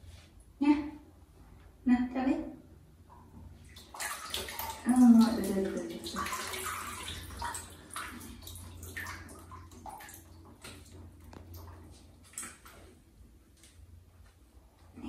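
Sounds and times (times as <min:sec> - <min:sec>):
water dripping into plastic basin: 0:03.0 - 0:13.0.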